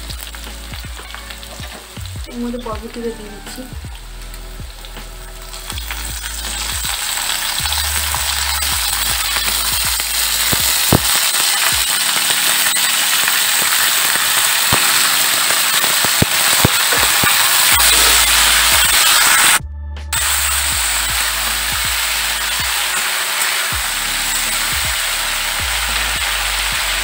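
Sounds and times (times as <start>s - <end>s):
beans sizzling in hot oil: 0.0s - 19.6s, 20.2s - 27.0s.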